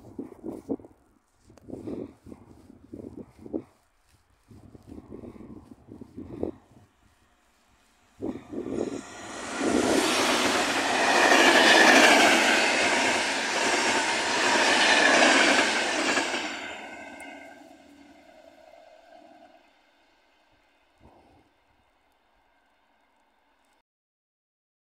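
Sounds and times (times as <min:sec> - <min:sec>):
passenger train passing: 0:04.6 - 0:23.7.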